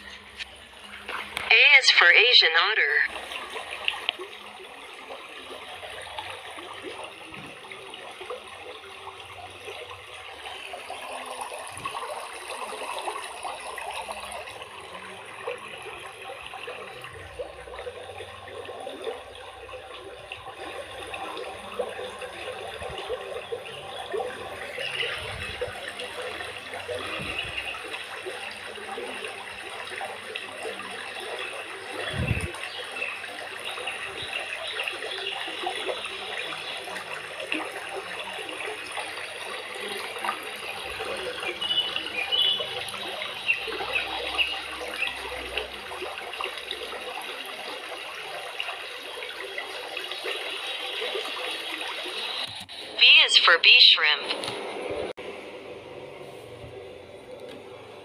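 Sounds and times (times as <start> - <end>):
stream water flowing over rocks: 0.0 - 54.7.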